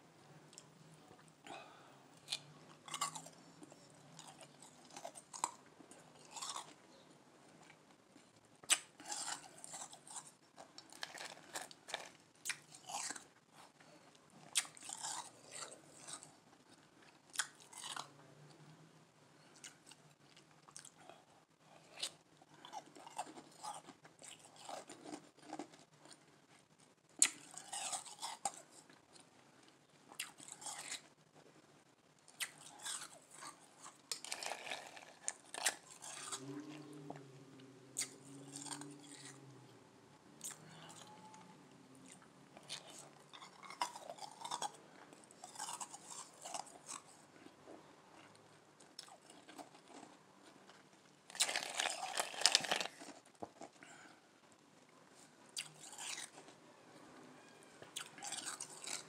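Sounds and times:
person crunching ice: 51.3 - 53.2.

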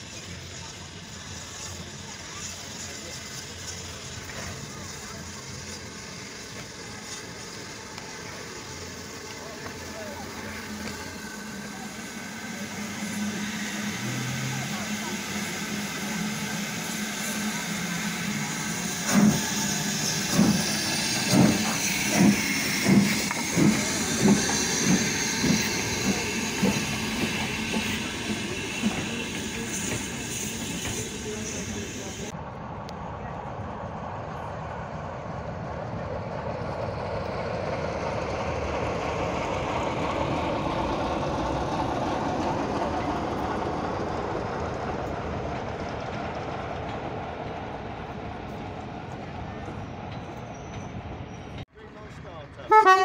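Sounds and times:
steam hiss: 0.0 - 32.3
steam locomotive exhaust beats: 0.0 - 32.3.

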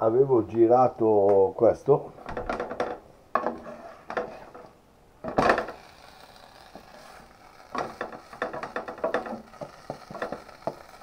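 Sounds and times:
frying pan and utensils knocking: 7.8 - 10.9.

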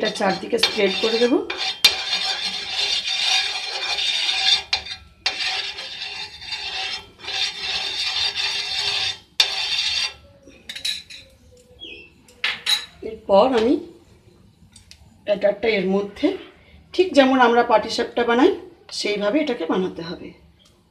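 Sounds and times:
brush rubbing across pan: 0.0 - 10.3.

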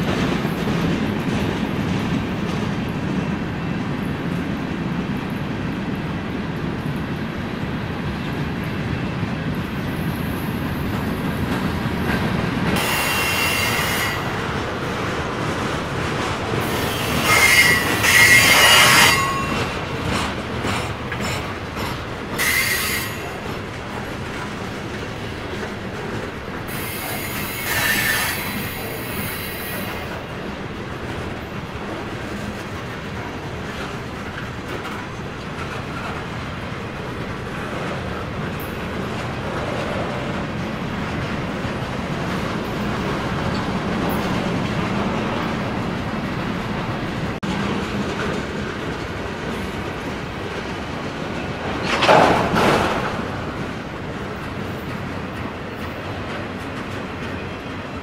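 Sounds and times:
train wheels rumbling on rail: 0.0 - 58.0
high wheel squeal: 12.8 - 14.3, 16.6 - 19.7, 22.4 - 23.4, 26.7 - 30.0.

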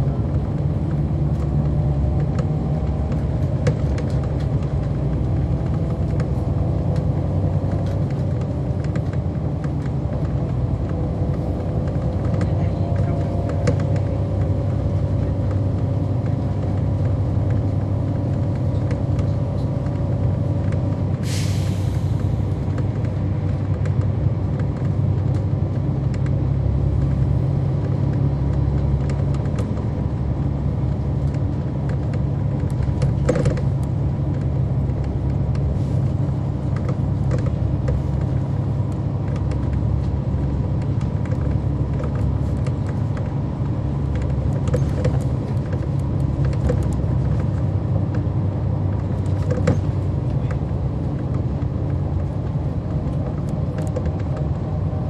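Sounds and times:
bus diesel engine rumbling: 0.0 - 55.0
sharp clicks and rattles: 22.2 - 54.8.

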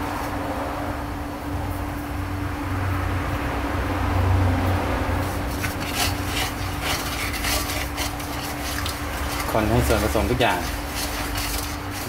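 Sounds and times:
steady low hum: 0.0 - 12.0
metal spatula scraping a wok: 5.2 - 12.0.

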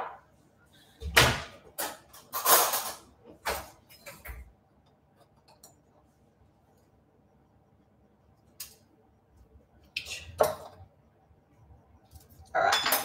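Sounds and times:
kitchen utensils knocking and clattering: 0.0 - 0.2, 1.0 - 4.5, 12.4 - 13.0.

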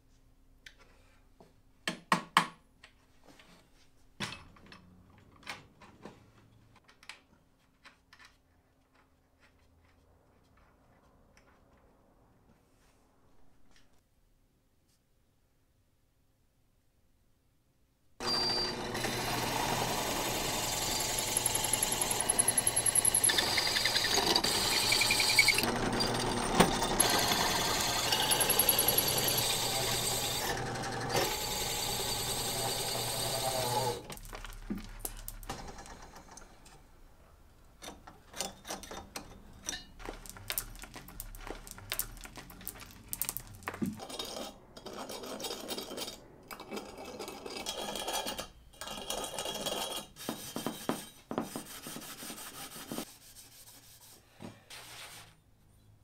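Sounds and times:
drill press cutting metal: 18.2 - 34.2.

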